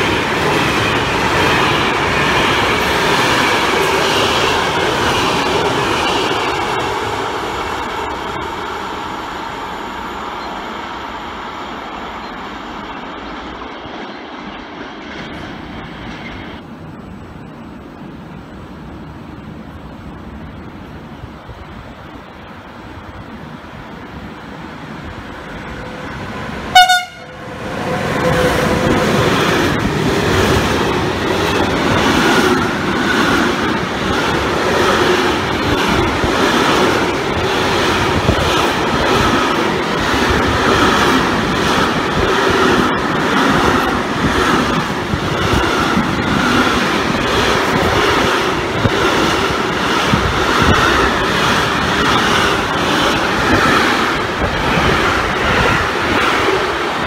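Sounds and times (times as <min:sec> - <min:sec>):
train wheels rushing on rail: 0:00.0 - 0:57.0
train horn blast: 0:26.7 - 0:27.5.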